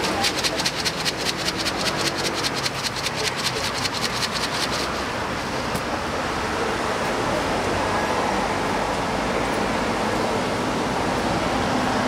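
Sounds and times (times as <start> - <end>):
rapid even ticking: 0.0 - 5.2
street traffic noise: 0.0 - 12.0.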